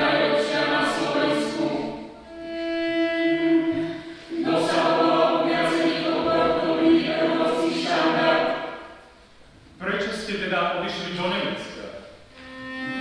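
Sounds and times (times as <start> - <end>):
mixed choir singing in harmony: 0.0 - 2.5, 3.3 - 9.2.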